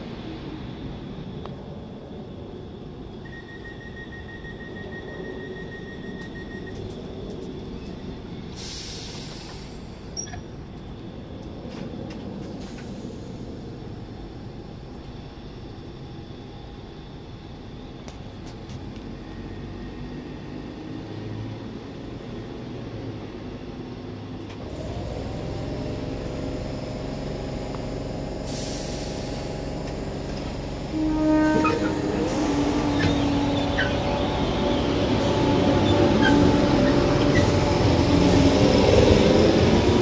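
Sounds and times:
train equipment humming: 0.0 - 40.0
air hiss: 8.6 - 10.1, 28.4 - 29.6.

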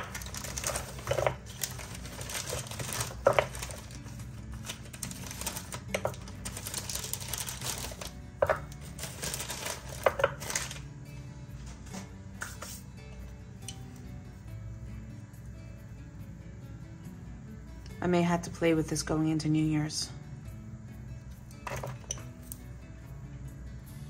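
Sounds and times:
containers clicking and tapping: 0.0 - 3.9, 5.6 - 10.8, 21.6 - 22.3
plastic bag crinkling: 0.0 - 10.9
faint background music: 0.0 - 24.0.

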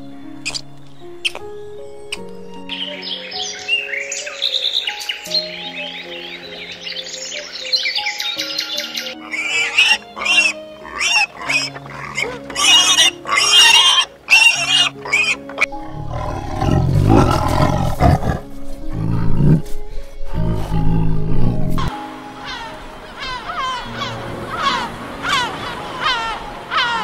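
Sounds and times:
piglets squealing: 9.2 - 16.8
tiger growling: 9.5 - 21.9.

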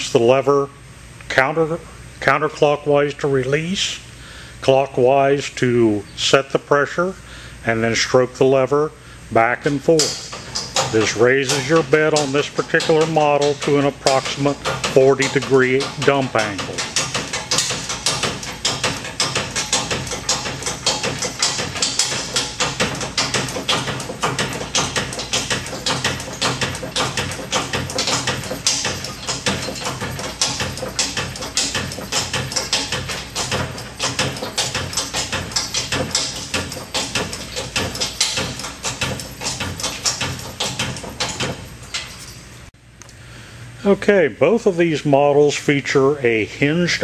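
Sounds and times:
hand pump clicking and squeaking: 9.7 - 42.6.

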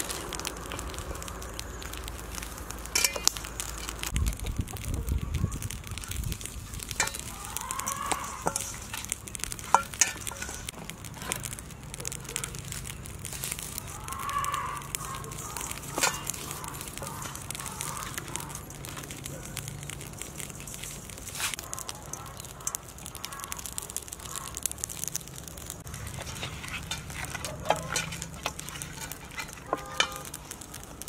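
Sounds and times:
gritty salt crackling: 0.0 - 31.0.

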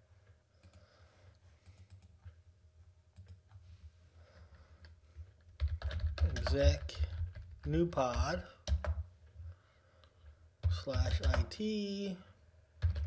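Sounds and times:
computer keyboard clicks: 5.5 - 9.0.

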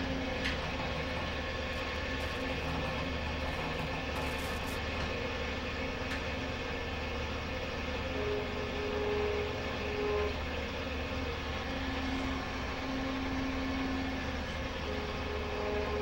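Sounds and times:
machine humming and hissing: 0.0 - 16.0.

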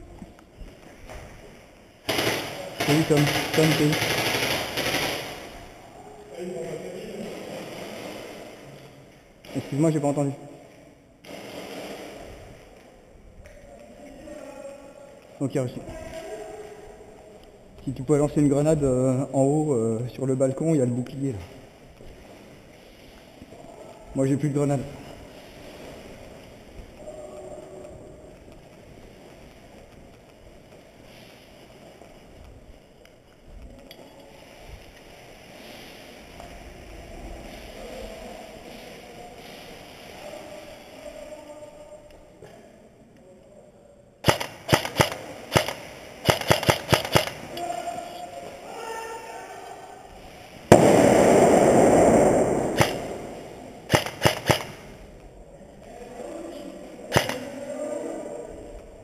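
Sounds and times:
footsteps: 0.0 - 5.8, 6.4 - 40.8, 50.0 - 55.3
airsoft shots snapping: 2.1 - 5.6, 44.2 - 47.5, 50.7 - 55.0, 57.1 - 57.5
grenade bang: 50.7 - 54.8
loud rushing noise: 50.7 - 54.9.

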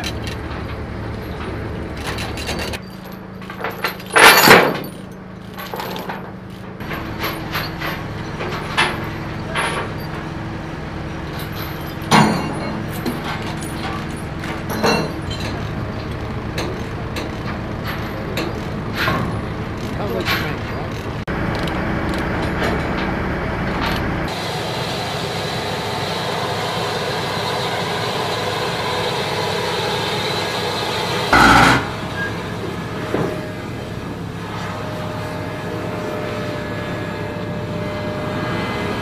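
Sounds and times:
metal clanks: 0.0 - 10.3, 11.2 - 21.3
engine running: 0.0 - 39.0
chains rattling: 1.1 - 10.3, 11.2 - 15.8.

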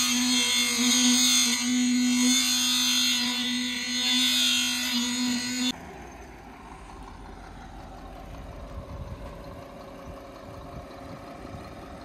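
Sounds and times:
diesel truck engines idling: 3.1 - 12.0.

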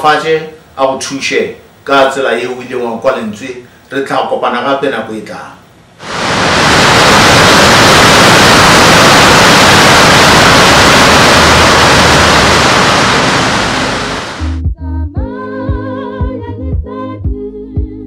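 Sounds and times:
waterfall rushing: 6.0 - 14.5.

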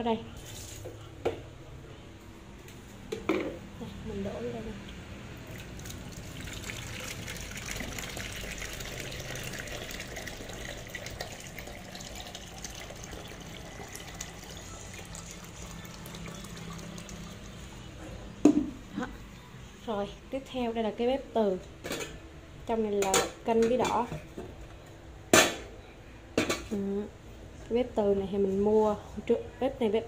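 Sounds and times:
water pouring into plastic container: 5.5 - 17.7.

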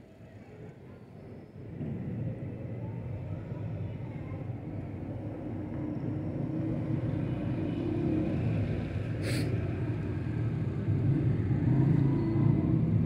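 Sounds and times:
distant road traffic rumble: 1.6 - 13.0
brief hiss: 9.2 - 9.5.

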